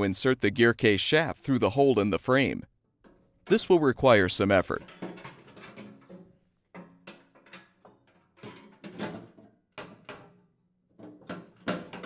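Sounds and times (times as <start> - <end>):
metal knocking against steel housing: 4.7 - 10.4.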